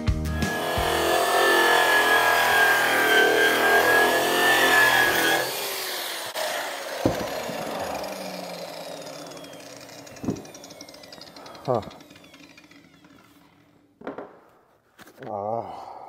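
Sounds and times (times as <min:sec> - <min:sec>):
electric polisher grinding metal: 0:00.2 - 0:14.0.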